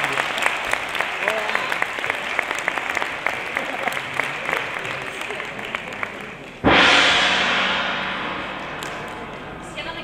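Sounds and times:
audience applause: 0.0 - 6.6
loud burst of music: 6.6 - 10.0.

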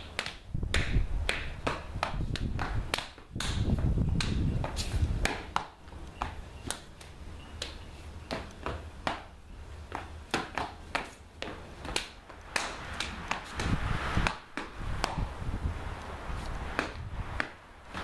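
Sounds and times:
hands slapping and clapping: 0.0 - 4.4, 11.8 - 15.2
shoes scuffing on concrete: 0.0 - 15.4, 16.1 - 18.0.

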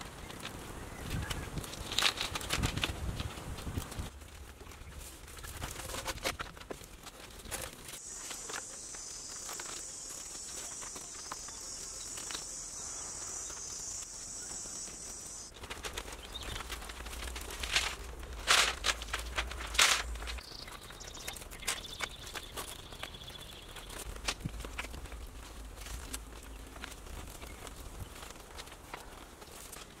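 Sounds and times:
bamboo poles clicking and knocking: 0.0 - 12.6, 15.4 - 30.0
high-pitched insect drone: 8.0 - 15.5.

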